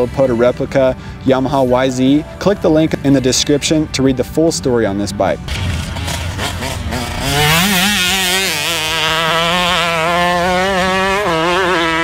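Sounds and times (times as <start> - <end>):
two-stroke motorcycle engine revving: 5.4 - 12.0.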